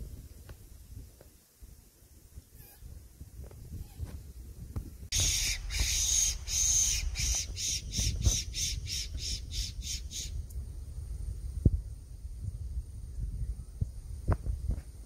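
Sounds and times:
wind rumble: 0:00.0 - 0:15.0
fox whistle squeals: 0:05.2 - 0:10.3.

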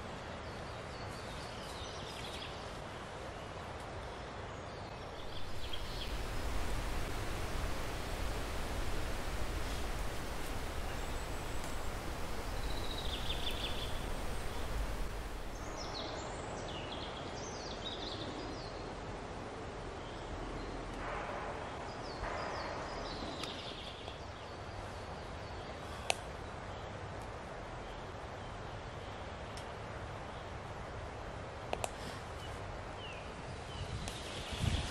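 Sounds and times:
outdoor background hiss: 0:00.0 - 0:34.9
high bird chirps: 0:05.0 - 0:16.2.

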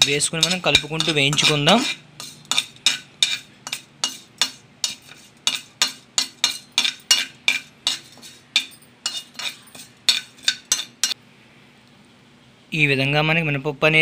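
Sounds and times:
metal spoon scraping a pan: 0:00.0 - 0:11.2.

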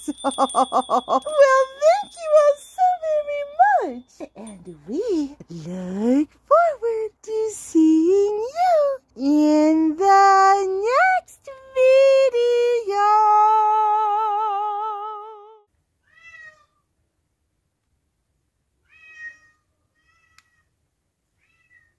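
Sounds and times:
person singing with vibrato: 0:00.0 - 0:15.7
cat meows: 0:16.0 - 0:16.8, 0:18.8 - 0:20.7, 0:21.4 - 0:21.9.

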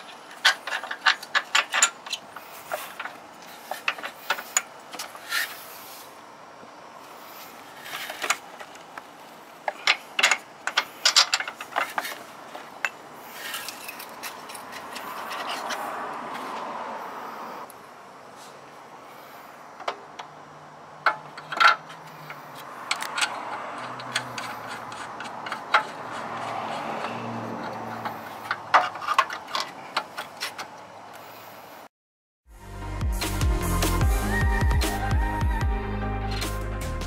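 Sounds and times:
metal tools clinking: 0:00.0 - 0:05.6, 0:09.6 - 0:15.9, 0:21.0 - 0:30.8
hiss: 0:02.5 - 0:06.3.

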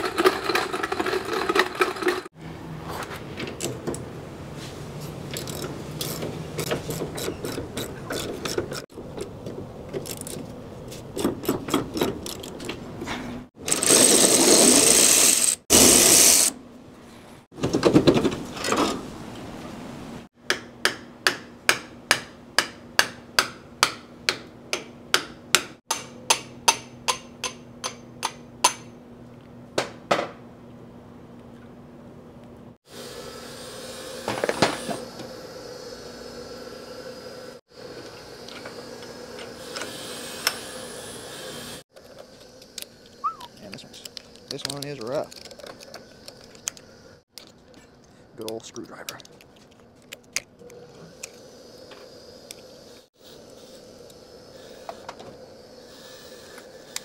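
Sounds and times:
tools scraping and clinking: 0:00.0 - 0:02.3, 0:05.0 - 0:15.6, 0:42.0 - 0:51.4
loud hiss: 0:51.2 - 0:57.0.

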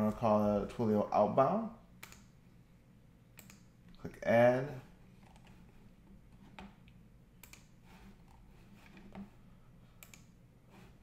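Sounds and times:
computer mouse clicks: 0:02.0 - 0:02.3, 0:03.4 - 0:03.7, 0:06.4 - 0:09.3, 0:10.0 - 0:10.4.

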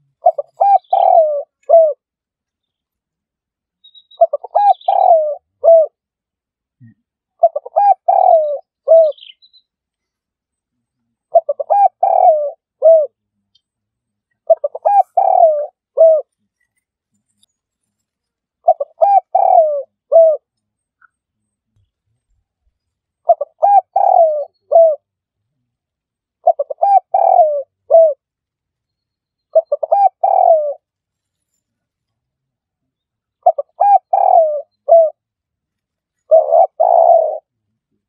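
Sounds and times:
dove cooing: 0:00.0 - 0:02.0, 0:04.2 - 0:06.0, 0:07.4 - 0:09.4, 0:11.2 - 0:13.2, 0:14.4 - 0:16.3, 0:18.6 - 0:20.5, 0:23.2 - 0:25.1, 0:26.4 - 0:28.2, 0:29.5 - 0:30.8, 0:33.4 - 0:35.2, 0:36.3 - 0:37.5.

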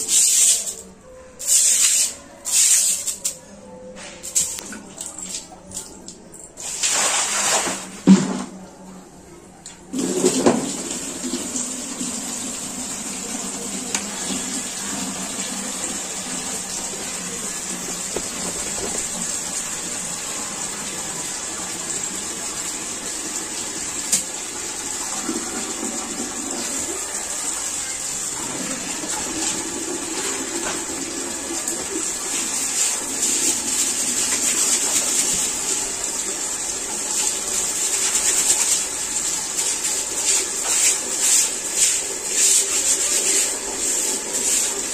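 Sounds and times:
water running from a tap: 0:10.0 - 0:44.9.

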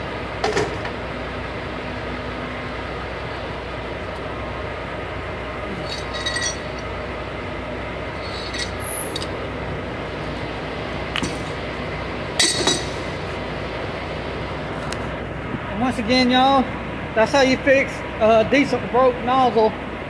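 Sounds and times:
steady background hum: 0:00.0 - 0:20.0
metal wrenches clinking: 0:05.7 - 0:06.8, 0:08.2 - 0:09.4, 0:12.4 - 0:13.0.

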